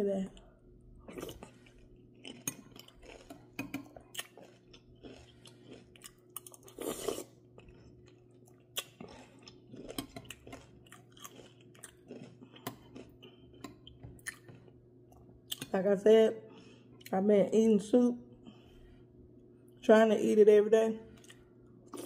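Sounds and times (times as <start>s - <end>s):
chewing and crunching: 0.3s - 15.8s.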